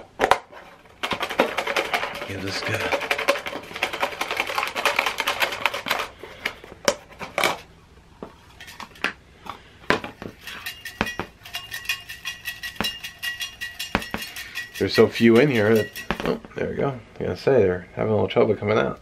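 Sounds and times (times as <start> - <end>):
paper slips rattling in cup: 0.8 - 6.6, 10.3 - 16.4
metal cup knocking and clinking: 10.3 - 16.4
metal cup ringing under taps: 10.4 - 16.3.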